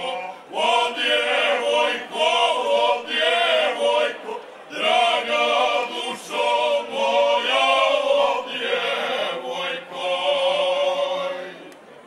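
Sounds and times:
men singing in harmony: 0:00.0 - 0:11.7.

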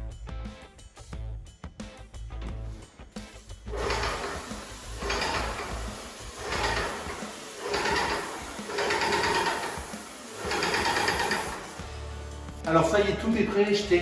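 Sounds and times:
small electric power tool running: 0:03.7 - 0:12.0.

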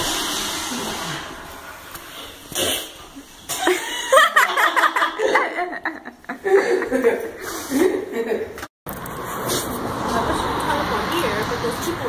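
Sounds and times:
people chuckling and giggling: 0:03.5 - 0:08.6.

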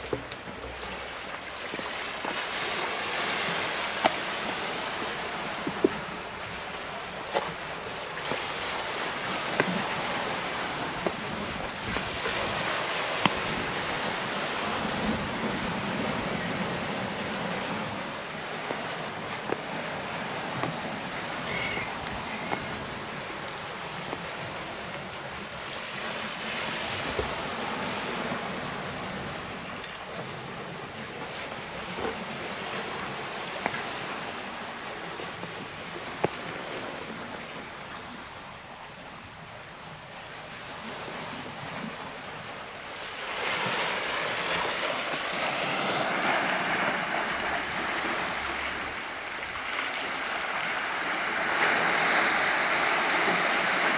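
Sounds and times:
waves washing against rocks: 0:00.0 - 0:37.6, 0:39.8 - 0:53.9
wind on microphone: 0:00.0 - 0:39.4.

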